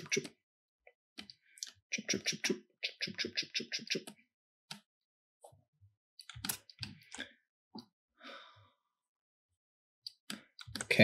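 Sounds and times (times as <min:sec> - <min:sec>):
breathy sigh: 0:08.2 - 0:08.7.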